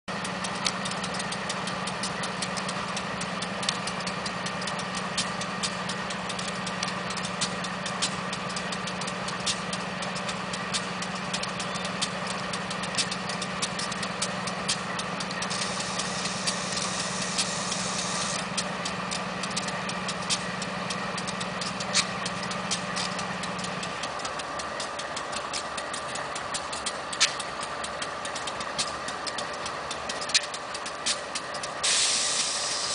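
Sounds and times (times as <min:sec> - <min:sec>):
diesel locomotive idling: 0:00.1 - 0:32.9
sharp clicks: 0:00.4 - 0:02.8, 0:04.6 - 0:32.9
steady low hum: 0:13.7 - 0:30.3
hiss: 0:15.5 - 0:18.4, 0:31.8 - 0:32.9.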